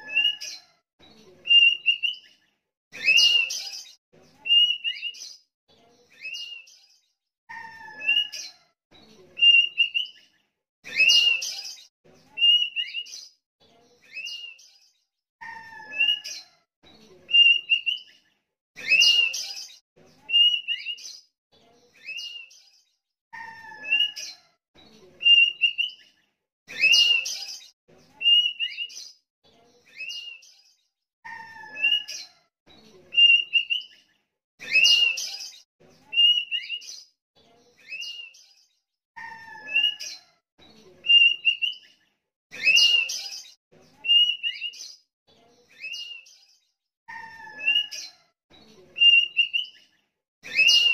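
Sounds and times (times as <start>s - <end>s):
bird singing whistled notes: 0.0s - 0.4s, 1.5s - 2.2s, 4.5s - 5.2s, 9.4s - 10.2s, 17.4s - 18.1s, 25.2s - 26.0s, 33.2s - 33.9s, 36.1s - 36.8s, 41.1s - 41.8s, 44.1s - 44.8s, 49.0s - 49.8s.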